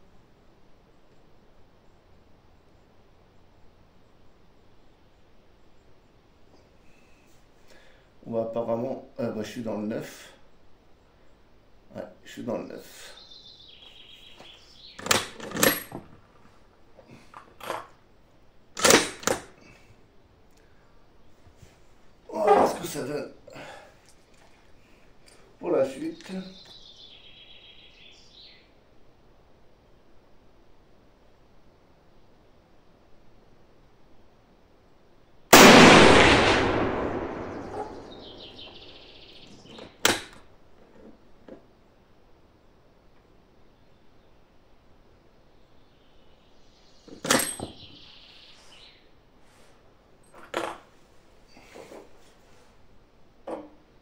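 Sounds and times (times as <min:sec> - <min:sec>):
rifle bolt clacking: 0:18.8 - 0:19.5
rifle shot with echo: 0:35.5 - 0:39.1.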